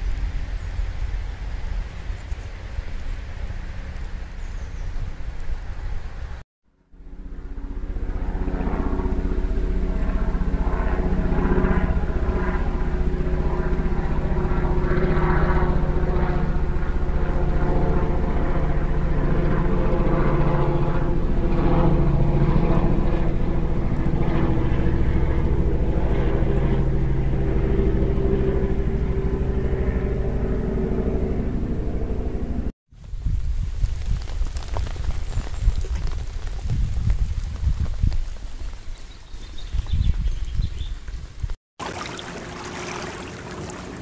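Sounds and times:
engine drone: 0:00.0 - 0:32.7, 0:41.8 - 0:44.0.

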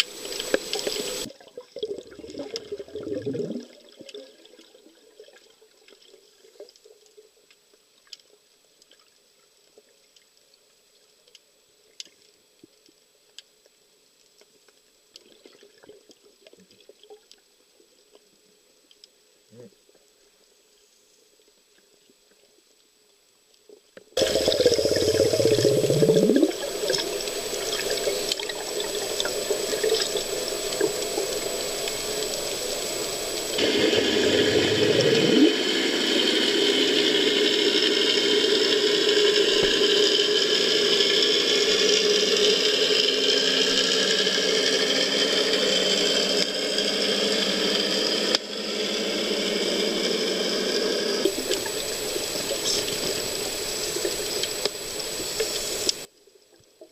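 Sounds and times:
rushing water: 0:00.0 - 0:03.0, 0:24.2 - 0:43.9, 0:51.2 - 0:56.1.

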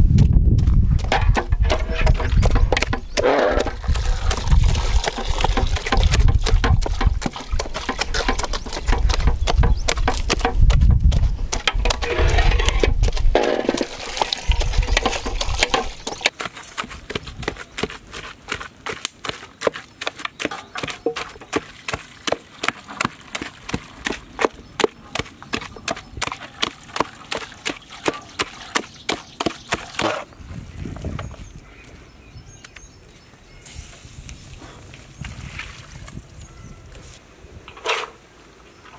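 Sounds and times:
masher pounding in pot: 0:01.0 - 0:18.0, 0:18.9 - 0:30.2.

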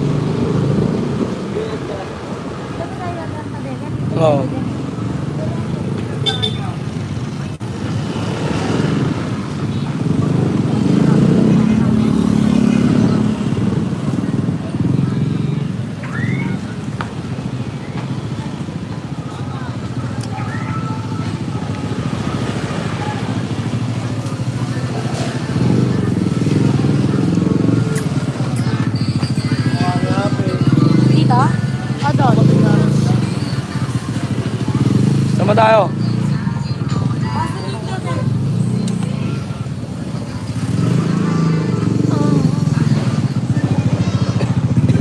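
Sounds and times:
faint voices: 0:00.0 - 0:45.0
motor scooter engine revving: 0:21.2 - 0:36.6, 0:37.4 - 0:45.0.

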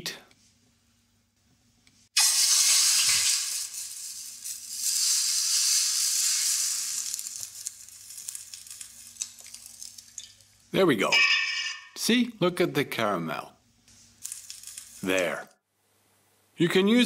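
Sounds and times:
hot pan hissing in water: 0:02.2 - 0:09.8.

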